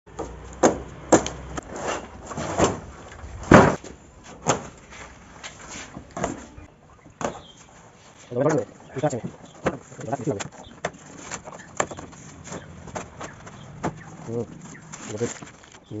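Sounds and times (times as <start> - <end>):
cardboard tearing and scraping: 9.8 - 16.0.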